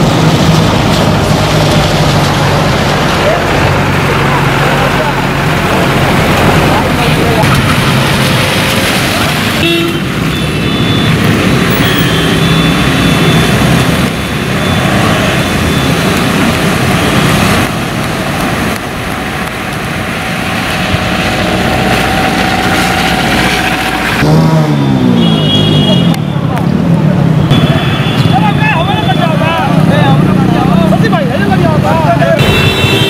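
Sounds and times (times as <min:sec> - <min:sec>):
tyres splashing through water: 0:00.0 - 0:33.0
vehicle engines running: 0:00.0 - 0:33.0.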